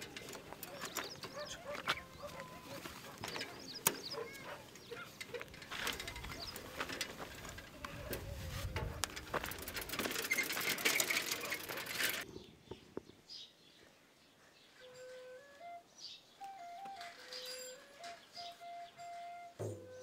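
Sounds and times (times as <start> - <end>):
bicycle rattling and clicking: 0.0 - 12.3.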